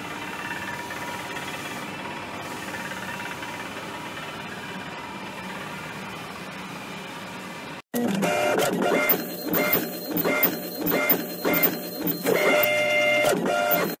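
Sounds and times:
printer running: 8.0 - 14.0
inkjet printer shuttling with ringing tones: 8.2 - 14.0.

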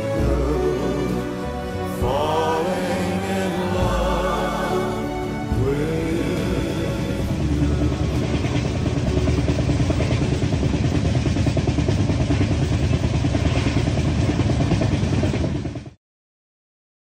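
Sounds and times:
train wheels rumbling on rails: 3.5 - 16.0.

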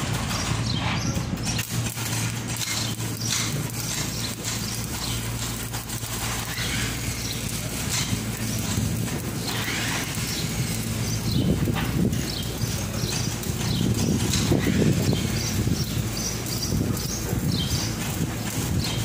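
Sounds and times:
low machine hum: 0.0 - 19.0
welding arc crackling: 0.0 - 19.0.

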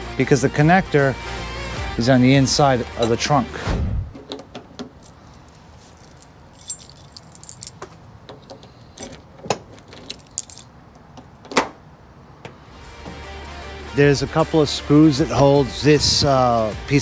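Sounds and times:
key ring jangling: 5.0 - 7.8, 8.8 - 10.7.

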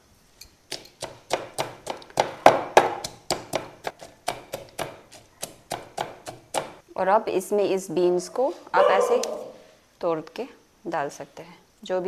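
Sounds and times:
pestle pounding in wooden mortar: 0.7 - 6.8.

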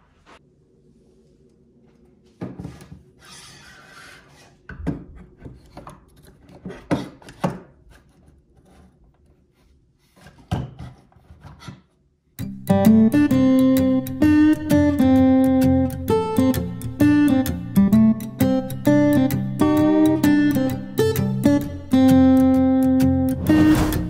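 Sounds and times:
objects rubbing and scraping: 23.4 - 24.0.

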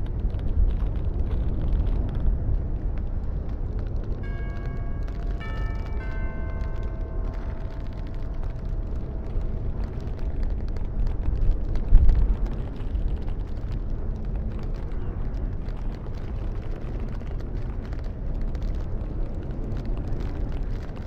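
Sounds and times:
strong wind blowing: 0.0 - 21.0
ringing bell-like tone: 4.2 - 10.1.

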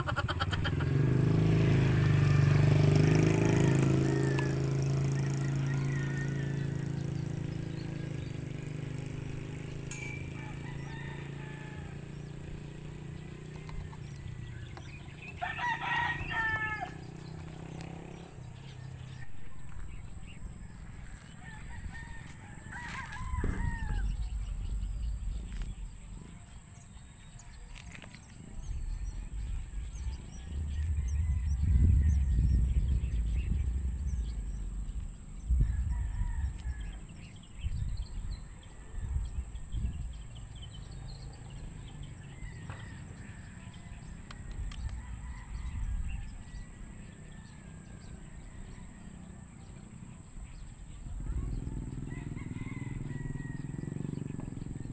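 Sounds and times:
rooster crowing: 3.0 - 8.3, 10.0 - 12.4, 15.0 - 17.4, 20.5 - 24.8, 29.8 - 34.4, 35.4 - 37.3, 42.2 - 49.4, 51.4 - 54.9
low rumbling noise: 17.2 - 27.6, 28.4 - 41.0.

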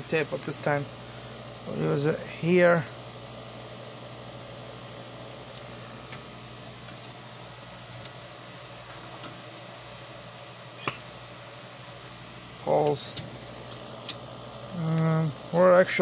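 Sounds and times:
laser engraver fans humming: 0.0 - 16.0.

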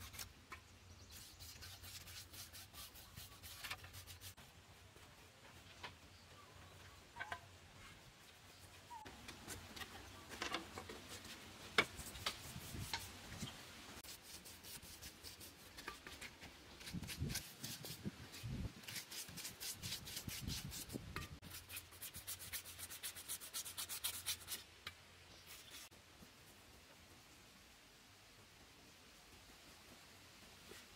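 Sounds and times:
tool scraping bamboo: 0.0 - 4.4, 9.0 - 25.9.

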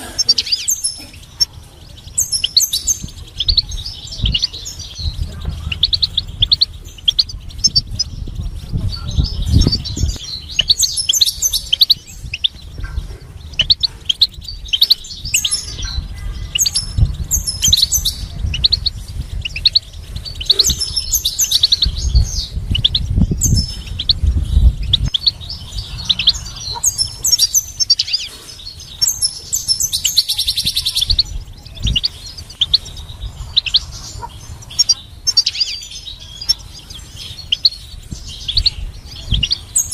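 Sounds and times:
bird twittering and chirping: 0.0 - 39.9
dull low thumps: 2.8 - 28.0.

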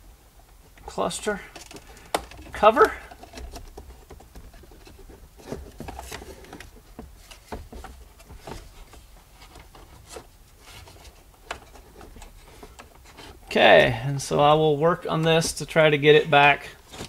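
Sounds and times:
plastic parts clicking and tapping: 1.5 - 14.4.

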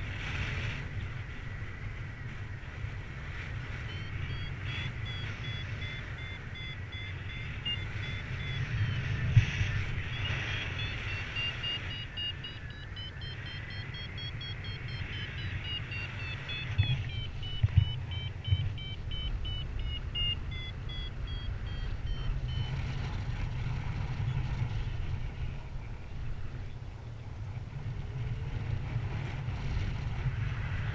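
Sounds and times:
wind rushing over microphone: 0.0 - 30.9
variometer beeping: 3.4 - 24.5
wind thumps: 14.2 - 22.2.

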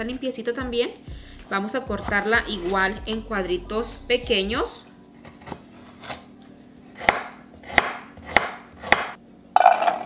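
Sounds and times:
knife chopping on wooden board: 7.0 - 9.2.

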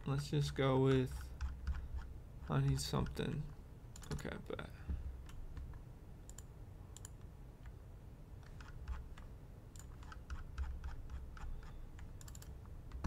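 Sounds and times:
keyboard and mouse clicks: 0.9 - 3.3, 3.9 - 4.4, 5.2 - 7.8, 8.4 - 13.0.

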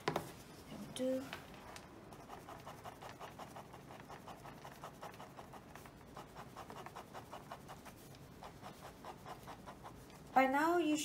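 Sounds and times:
ballpoint pen scratching on paper: 2.1 - 10.4.

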